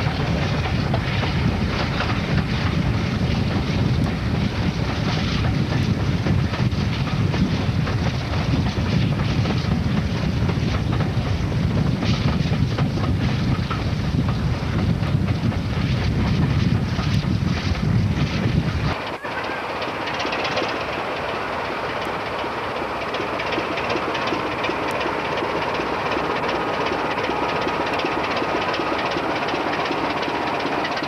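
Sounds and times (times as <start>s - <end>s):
wind buffeting microphone: 0.0s - 30.8s
train rumbling on rails: 0.0s - 31.0s.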